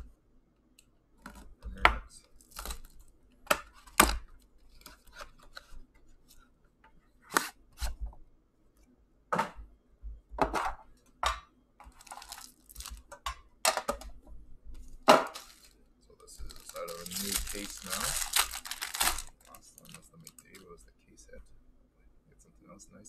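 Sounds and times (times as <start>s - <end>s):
plastic crinkling: 2.2s - 6.4s, 11.8s - 13.1s, 14.8s - 20.7s
shrink-wrap tearing: 2.4s - 3.0s, 11.9s - 13.0s, 15.3s - 15.7s, 16.3s - 20.6s.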